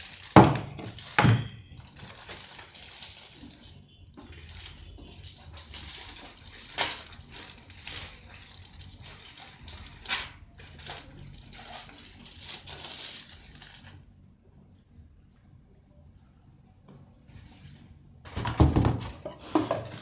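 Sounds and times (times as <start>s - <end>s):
plastic packaging crinkling: 0.0s - 14.2s.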